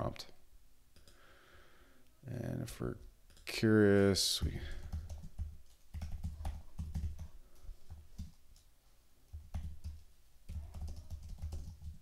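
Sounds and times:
typing on computer keyboard: 0:04.4 - 0:08.7, 0:09.3 - 0:12.0.

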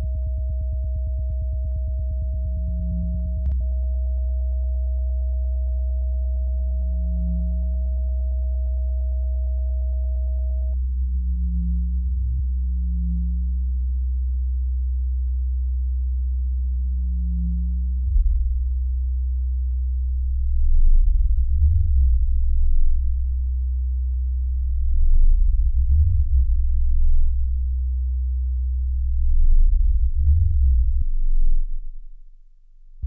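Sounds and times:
low electronic sine-tone drone: 0:00.0 - 0:33.0
rough low sound swells: 0:20.2 - 0:23.5, 0:24.4 - 0:27.9, 0:28.8 - 0:32.2.

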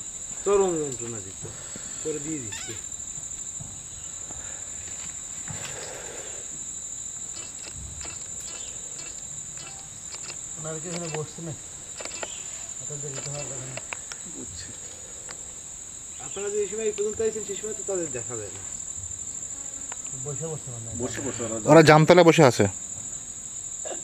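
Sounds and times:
high-pitched insect drone: 0:00.0 - 0:24.0
faint clicks and rustles: 0:06.6 - 0:15.5.

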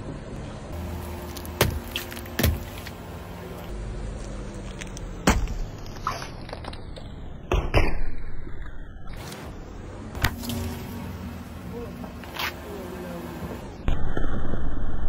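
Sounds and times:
car engine hum: 0:00.0 - 0:07.5, 0:09.2 - 0:13.8.

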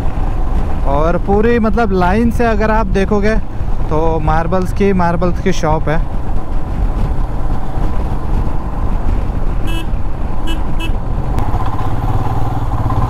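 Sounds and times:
wind and road noise: 0:00.0 - 0:13.0
motorcycle engine running: 0:06.0 - 0:13.0
vehicle horn toots: 0:09.6 - 0:11.0.

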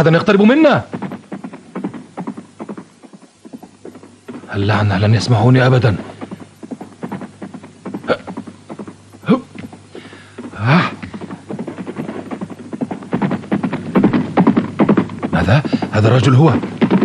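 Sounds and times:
galloping horse hoofbeats: 0:00.0 - 0:17.0
scattered knocks: 0:00.8 - 0:17.0.

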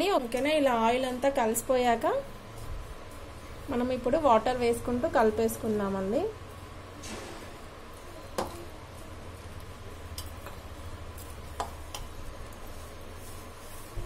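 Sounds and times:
hand mixing dough in plastic bowl: 0:08.9 - 0:14.0.

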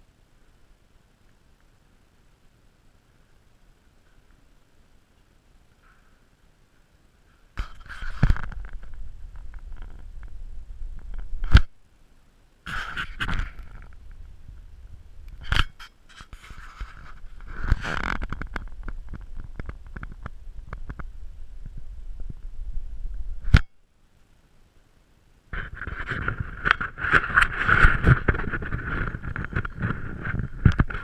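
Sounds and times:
hand rubbing against camera: 0:07.6 - 0:11.7, 0:12.7 - 0:14.3, 0:15.4 - 0:21.1, 0:25.6 - 0:31.0.

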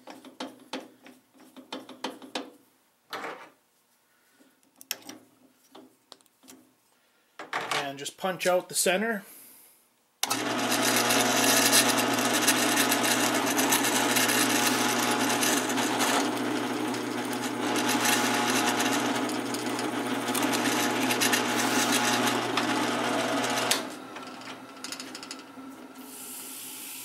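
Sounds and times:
drill press boring wood: 0:10.2 - 0:26.8.

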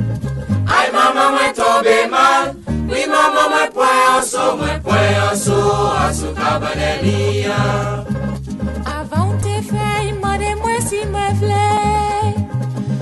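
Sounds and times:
low bass notes: 0:00.0 - 0:00.7, 0:04.6 - 0:13.0
vocal group singing in chorus: 0:00.7 - 0:08.1.

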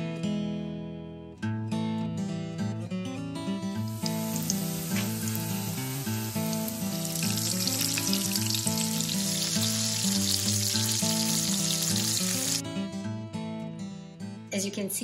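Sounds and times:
background music: 0:03.5 - 0:13.5
cutlets sizzling in hot oil: 0:03.8 - 0:12.6.

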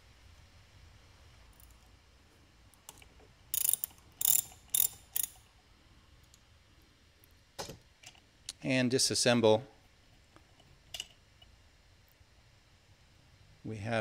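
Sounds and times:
ratchet wrench clicking: 0:03.5 - 0:05.4.

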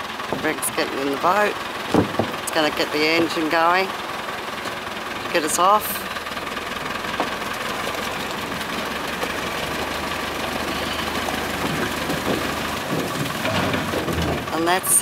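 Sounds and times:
engine idling: 0:00.0 - 0:15.0.

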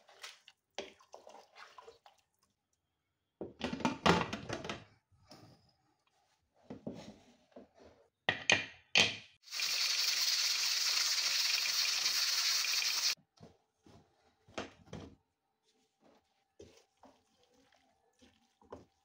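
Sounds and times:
steam hissing from pressure cooker: 0:09.5 - 0:13.2.

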